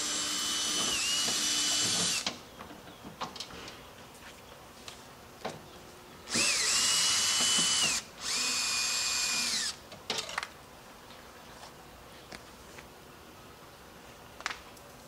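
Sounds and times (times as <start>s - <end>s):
cordless drill motor whine: 0.0s - 2.2s, 6.3s - 9.8s.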